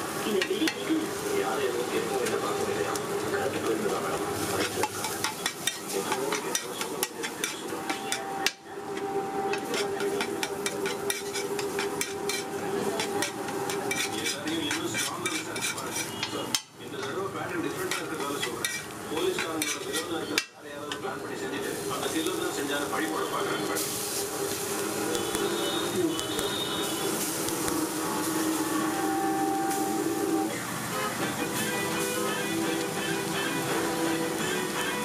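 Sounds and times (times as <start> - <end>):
metal spatula scraping on iron pan: 4.4 - 20.6.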